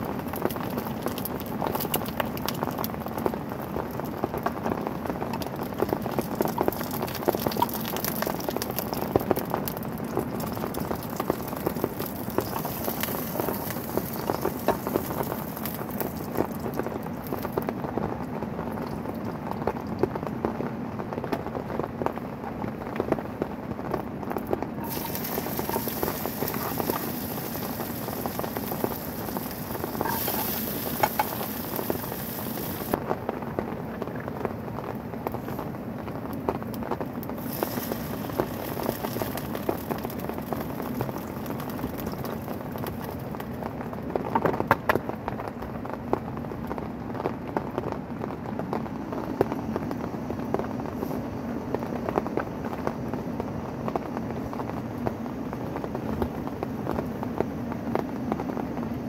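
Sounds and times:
oil sizzling in a frying pan: 0.0s - 17.7s, 24.8s - 33.0s, 37.4s - 43.5s
rain pattering on a tent: 0.0s - 59.0s.

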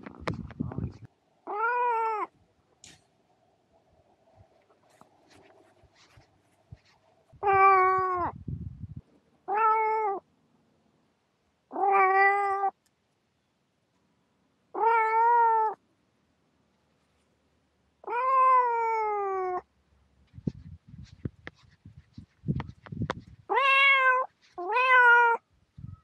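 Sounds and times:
kitten meowing: 1.4s - 2.3s, 7.4s - 8.4s, 9.5s - 10.2s, 11.7s - 12.8s, 14.8s - 15.8s, 18.0s - 19.6s, 23.5s - 25.4s
low rumbling noise: 6.6s - 9.2s.

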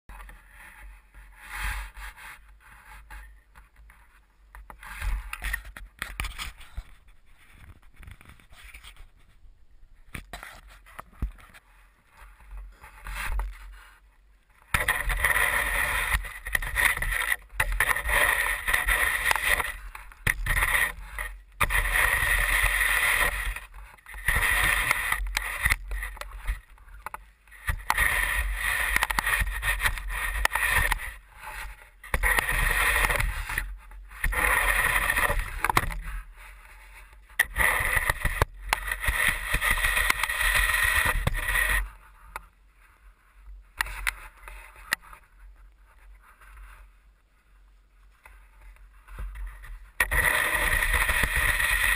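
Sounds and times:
snow shovel scraping: 14.8s - 26.8s, 27.5s - 42.0s, 50.0s - 51.9s.

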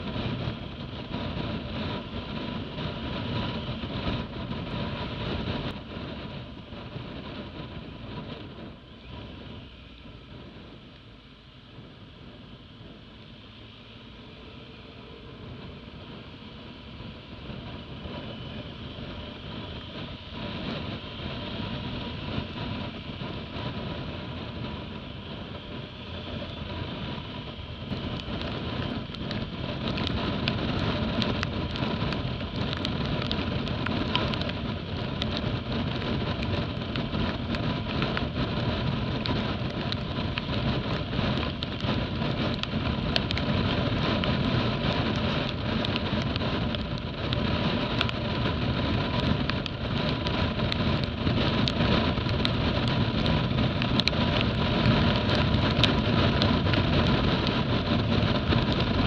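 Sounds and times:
motorcycle engine running: 0.0s - 59.0s
tyre noise on wet road: 0.0s - 59.0s
wind noise: 0.0s - 59.0s
dense crackle of sharp ticks: 17.5s - 59.0s.

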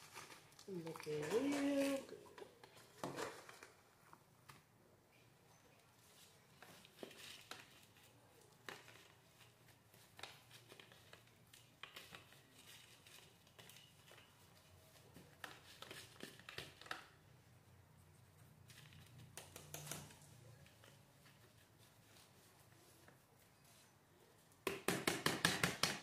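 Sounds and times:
potting mix rustling: 0.0s - 4.4s, 5.8s - 24.6s.

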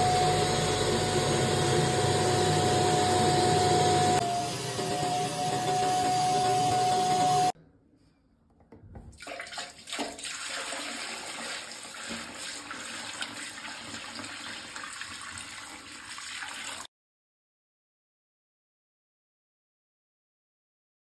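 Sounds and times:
extractor motor hum: 0.0s - 7.5s
water pouring into toilet bowl: 9.1s - 16.9s.

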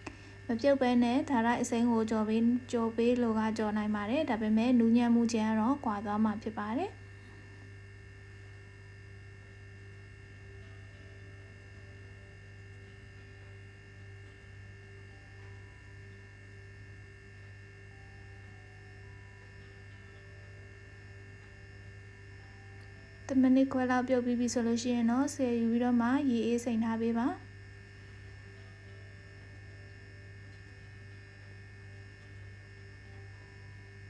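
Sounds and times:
low electrical hum: 0.0s - 34.0s.

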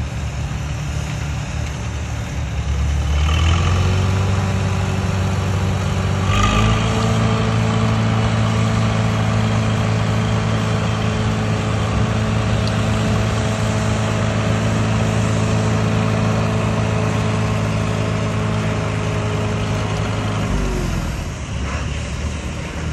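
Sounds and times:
tractor engine running: 0.0s - 22.9s.

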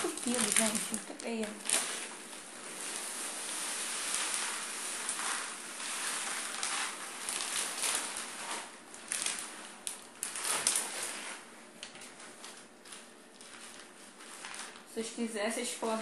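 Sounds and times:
cat litter pouring into tray: 0.0s - 9.6s.

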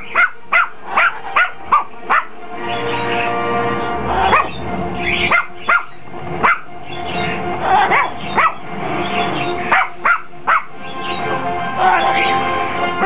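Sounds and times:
small dog barking: 0.0s - 2.4s, 4.3s - 4.6s, 5.3s - 6.7s, 7.9s - 8.6s, 9.7s - 10.7s
background music: 0.0s - 13.0s.

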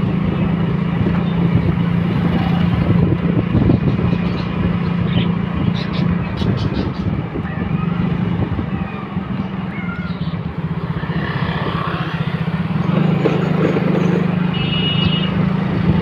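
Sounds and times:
small motorcycle engine running: 0.0s - 16.0s.

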